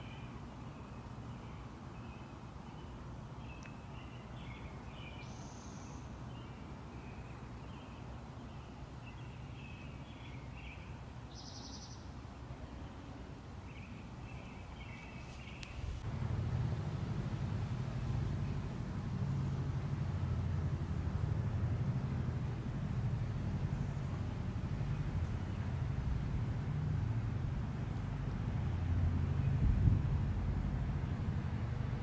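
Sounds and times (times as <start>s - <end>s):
small birds chirping: 0.0s - 16.1s
low background rumble: 13.7s - 32.0s
vehicle rumble: 14.8s - 32.0s.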